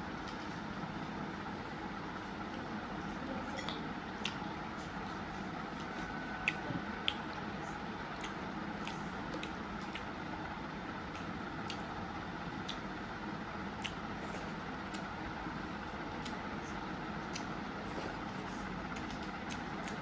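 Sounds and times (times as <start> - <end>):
background hum: 0.0 - 20.0
wet clicks and smacks: 13.8 - 14.0.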